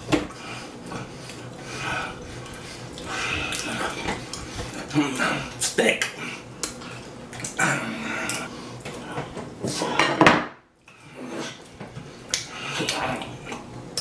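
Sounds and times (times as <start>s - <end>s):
wet chewing and lip-smacking: 6.6s - 7.6s.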